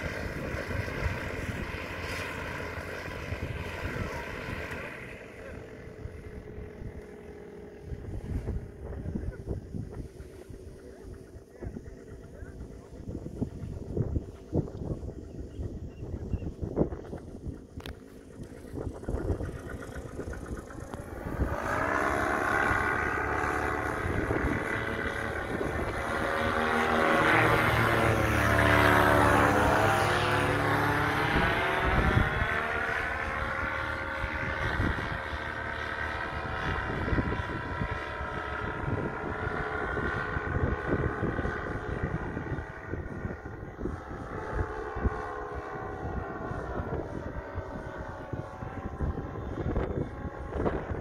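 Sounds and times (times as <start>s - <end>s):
paramotor engine drone passing: 0.0s - 51.0s.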